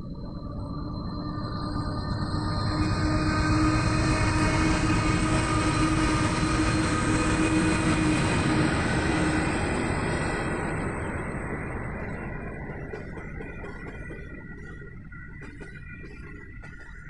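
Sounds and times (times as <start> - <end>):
locomotive hum: 1.4 - 16.8
train wheels rumbling on rails: 1.8 - 17.0.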